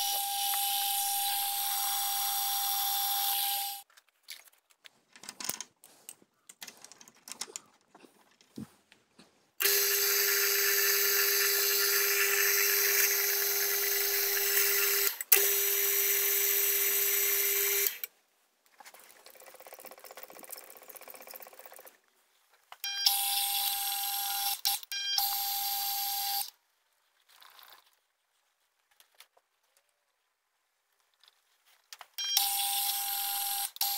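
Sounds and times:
mill-drill whine: 0.0s - 3.8s, 9.6s - 18.0s, 23.1s - 24.6s.

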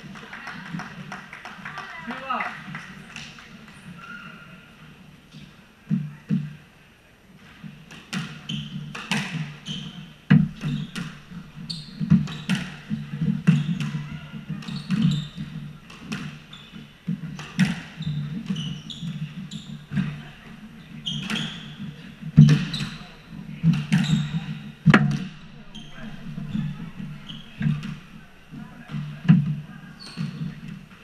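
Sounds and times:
sneakers squeaking on wooden floor: 8.2s - 31.0s.

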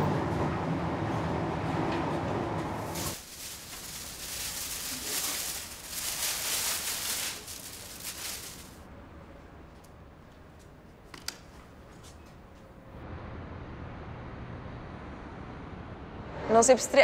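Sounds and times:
train rumbling: 0.0s - 9.6s
clothes and plastic bag rustling: 2.9s - 8.9s.

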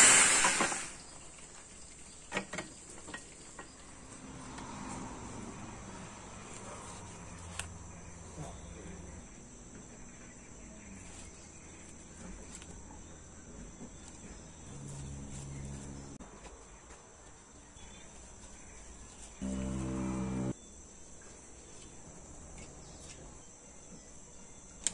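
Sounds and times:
faint low hum: 19.4s - 20.7s.

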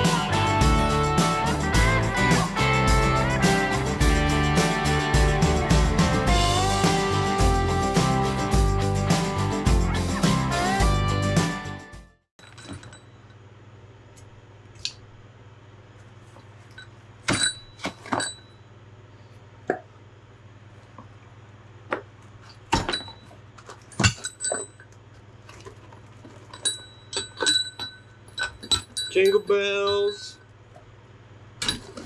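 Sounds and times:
metal parts clinking: 22.8s - 25.0s, 26.4s - 30.3s.

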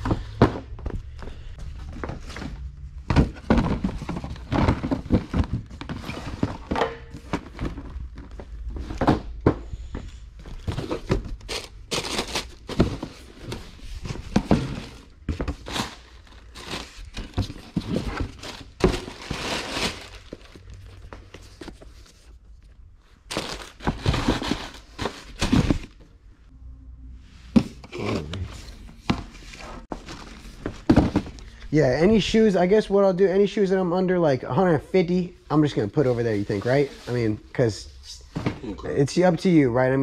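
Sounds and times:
cardboard boxes thunking: 0.0s - 1.1s, 1.8s - 21.8s, 23.3s - 26.0s, 29.0s - 31.6s
cardboard rustling: 0.1s - 26.0s, 27.5s - 31.6s.

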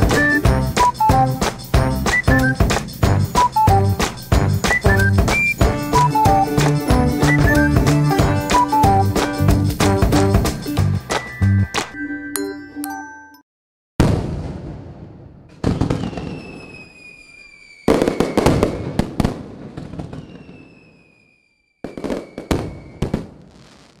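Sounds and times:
whistles falling in pitch: 0.0s - 9.2s, 16.0s - 19.0s, 20.1s - 23.0s
loud bursts with crackling: 21.8s - 24.0s.

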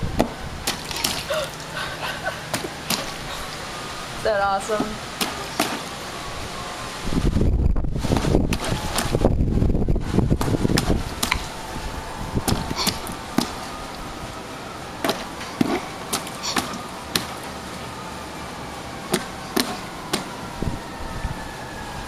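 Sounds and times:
wind rumble on microphone: 0.0s - 0.7s, 6.2s - 14.4s, 20.4s - 22.0s
hand splashing water: 0.7s - 1.8s, 2.5s - 3.5s.

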